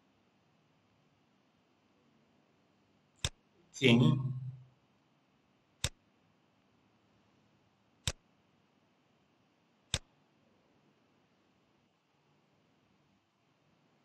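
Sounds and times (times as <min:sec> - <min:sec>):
faint room hiss: 0:00.0 - 0:14.0
computer mouse clicks: 0:03.2 - 0:03.4, 0:05.8 - 0:06.0.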